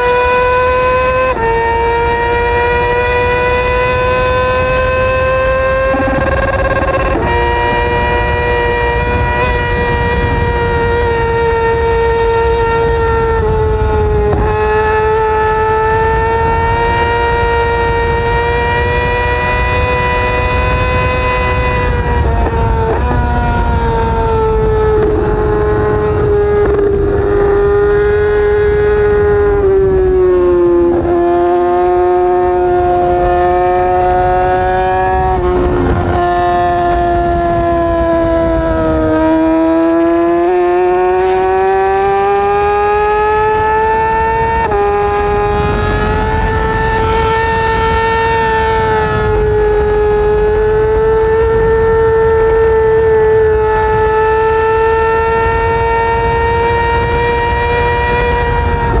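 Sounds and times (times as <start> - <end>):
motorcycle engine revving high: 0.0 - 59.0
wind rush: 0.0 - 59.0.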